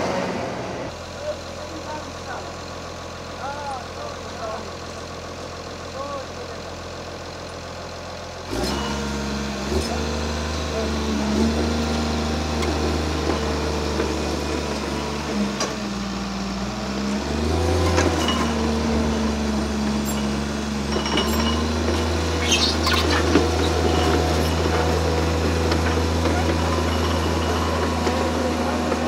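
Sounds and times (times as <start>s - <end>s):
diesel engine running: 0.0s - 29.0s
metallic knocks and clinks: 20.0s - 22.2s.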